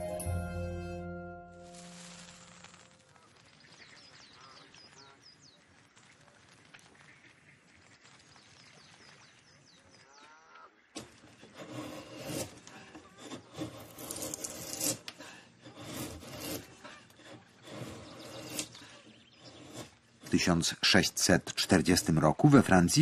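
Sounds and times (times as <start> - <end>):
hand tool rasping wood: 11.0 - 20.6.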